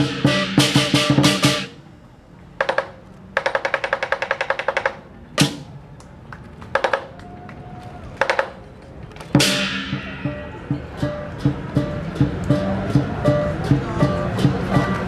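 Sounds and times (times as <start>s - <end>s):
big drum strikes: 0.0s - 1.8s, 9.4s - 15.0s
cymbals crashing: 0.0s - 1.8s, 9.4s - 15.0s.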